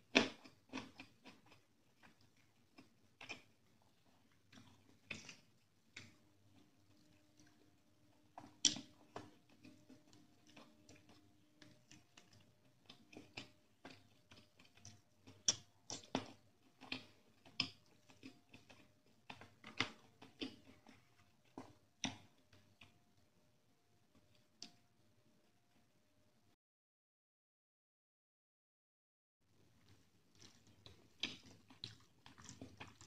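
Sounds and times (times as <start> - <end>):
chewing and smacking: 0.0 - 23.0, 29.6 - 33.0
fingers mixing rice on a plate: 0.1 - 23.0, 29.7 - 33.0.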